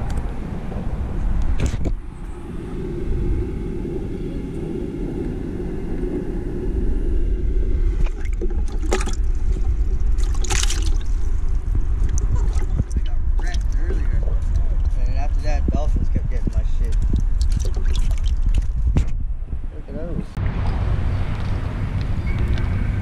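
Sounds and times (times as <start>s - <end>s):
low rumble: 0.0s - 23.0s
water splashing in a bucket: 8.0s - 11.4s, 16.9s - 18.9s.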